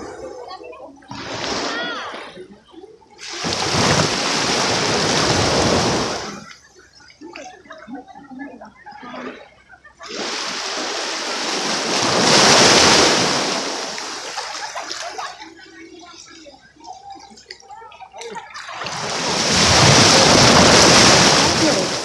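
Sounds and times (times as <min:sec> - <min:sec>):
small waves washing on sandy shore: 0:03.2 - 0:06.6, 0:10.0 - 0:15.5, 0:18.5 - 0:22.0.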